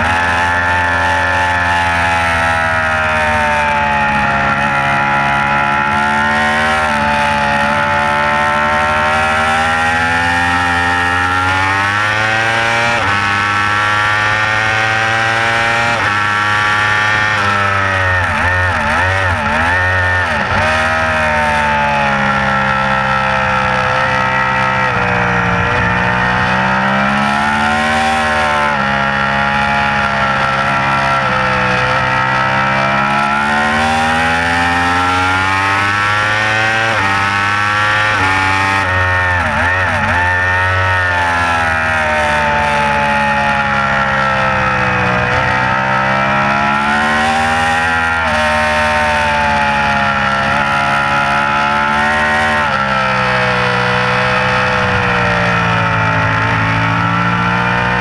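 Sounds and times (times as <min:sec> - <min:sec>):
motorcycle engine at racing speed: 0:00.0 - 0:58.0.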